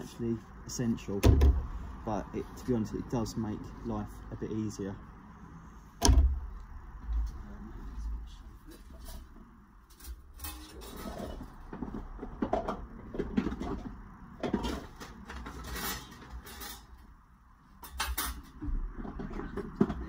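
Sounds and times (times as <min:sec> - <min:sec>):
metal tools clinking and scraping: 0:09.9 - 0:11.6, 0:14.5 - 0:17.0, 0:17.8 - 0:18.6.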